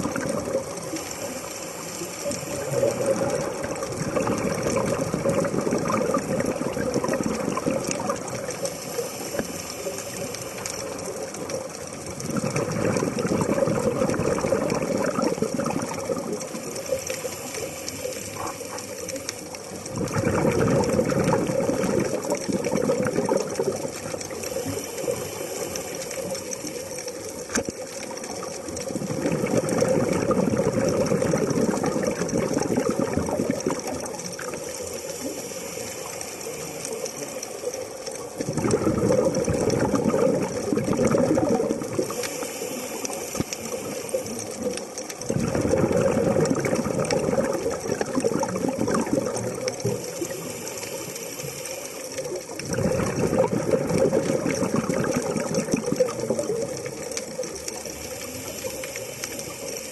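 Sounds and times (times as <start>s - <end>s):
quiet regulator hiss: 0.0s - 59.9s
regulator bubbles rushing underwater: 0.0s - 59.9s.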